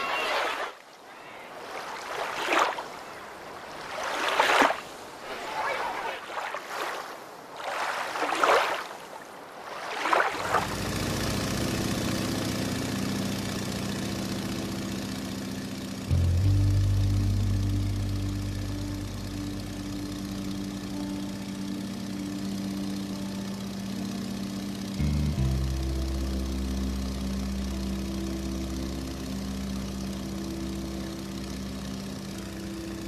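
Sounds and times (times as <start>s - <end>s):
sea water sloshing: 0.0s - 10.8s
low drone with held tones: 10.4s - 33.0s.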